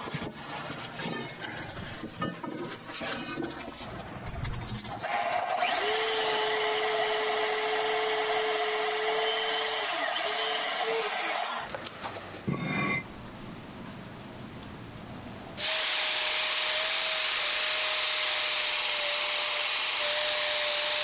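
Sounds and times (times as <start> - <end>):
band saw cutting steel: 5.0 - 11.7, 15.6 - 21.0.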